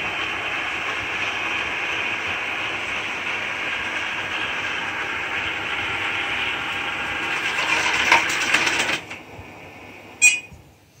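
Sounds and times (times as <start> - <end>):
robot vacuum cleaner whirring: 0.0 - 10.4
short electronic beep: 10.2 - 10.6.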